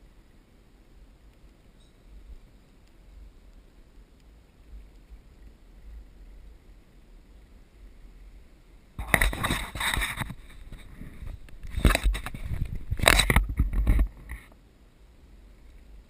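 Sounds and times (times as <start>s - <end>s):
faint low rumble: 0.0s - 16.0s
wind on microphone: 4.6s - 14.6s.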